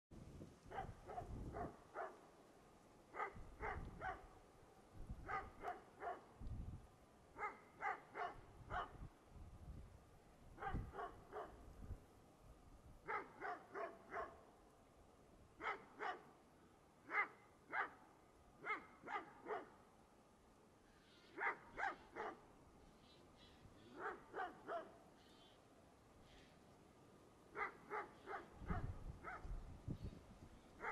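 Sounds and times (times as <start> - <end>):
dogs barking: 0.7 - 2.2, 3.1 - 4.3, 5.2 - 6.3, 7.4 - 9.0, 10.6 - 11.6, 13.1 - 14.4, 15.6 - 16.3, 17.1 - 18.0, 18.6 - 19.8, 21.3 - 22.4, 23.9 - 25.0, 27.5 - 29.5.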